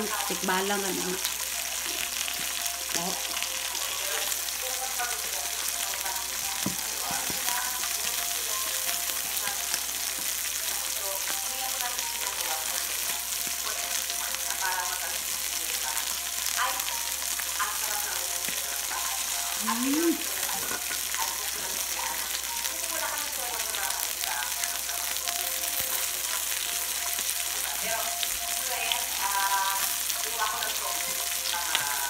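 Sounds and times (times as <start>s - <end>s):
meat sizzling on a grill: 0.0s - 32.0s.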